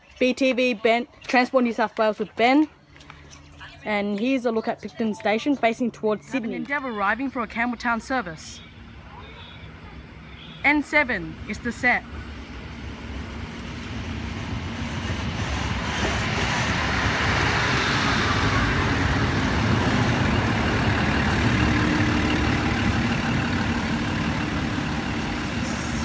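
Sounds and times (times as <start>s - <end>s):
diesel railcar engines: 0.0s - 26.0s
train wheels on rails: 10.2s - 26.0s.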